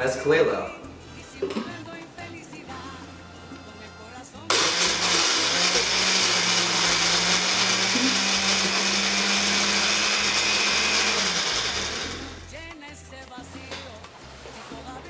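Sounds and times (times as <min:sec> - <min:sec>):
blender motor running: 0:04.5 - 0:12.6.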